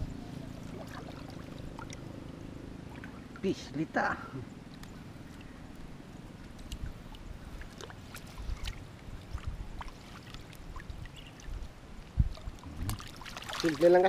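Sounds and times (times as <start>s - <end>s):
steady low rumble: 0.0s - 13.2s
small splashes: 0.5s - 3.4s, 6.5s - 11.7s, 12.3s - 14.0s
water sloshing and dripping: 0.5s - 3.6s, 6.4s - 14.0s.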